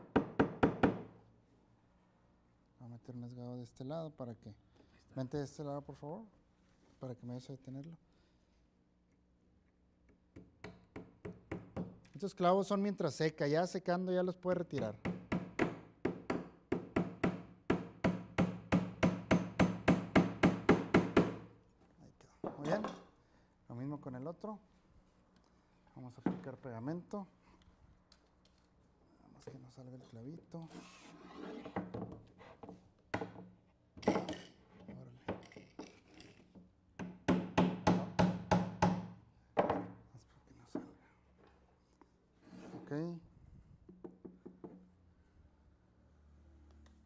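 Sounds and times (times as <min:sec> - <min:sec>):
hammer tapping nail into wood: 0:10.3 - 0:12.1, 0:14.8 - 0:21.4, 0:37.0 - 0:39.8.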